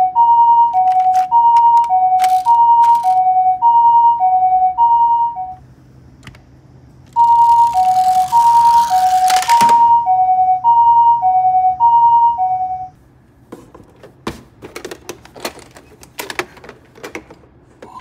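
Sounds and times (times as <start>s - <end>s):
two-tone ambulance siren: 0.0s - 5.6s, 7.1s - 13.0s.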